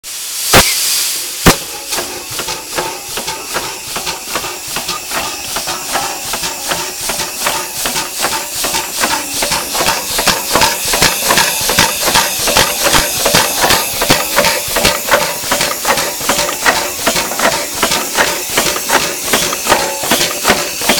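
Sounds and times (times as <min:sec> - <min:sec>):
hiss of air: 0:00.0 - 0:07.6
steam engine chuffing: 0:00.1 - 0:20.9.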